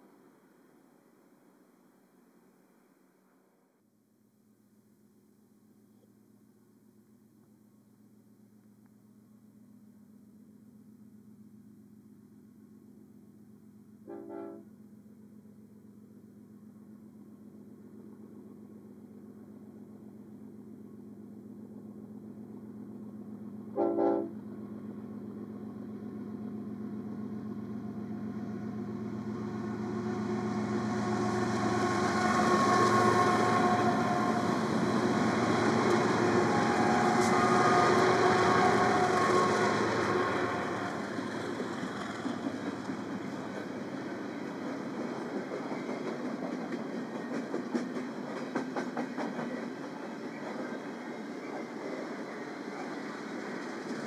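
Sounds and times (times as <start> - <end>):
train engines and wheels: 0.0 - 54.0
train air horn blasts: 14.1 - 14.7, 23.8 - 24.4, 30.4 - 41.3.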